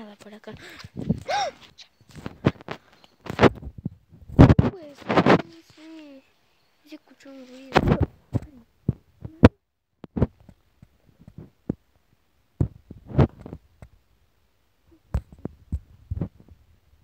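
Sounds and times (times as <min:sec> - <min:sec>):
soft thumps and clicks: 0:12.6 - 0:14.0, 0:15.1 - 0:16.6.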